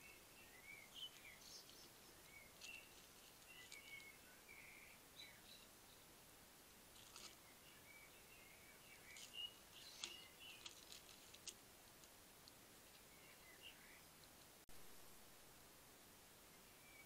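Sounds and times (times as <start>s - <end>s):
faint high chirps: 0.0s - 6.1s, 7.0s - 10.9s
hedgehog crunching dry food: 9.1s - 12.6s.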